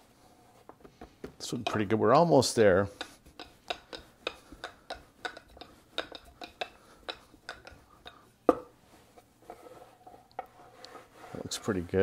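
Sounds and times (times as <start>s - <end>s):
rolling pin clicking and knocking: 0.8s - 2.0s, 2.8s - 8.7s.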